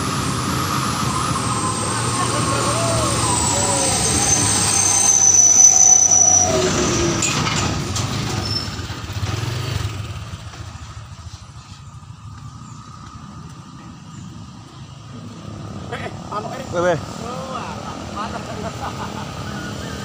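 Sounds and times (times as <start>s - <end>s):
truck brakes squealing: 0.0s - 9.9s, 19.2s - 20.0s
diesel truck engine rumbling: 0.0s - 20.0s.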